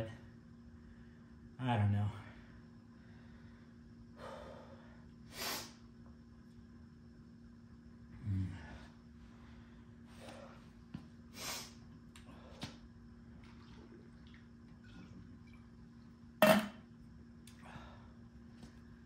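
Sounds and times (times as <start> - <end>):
bottle knocking on concrete floor: 16.4 - 16.8.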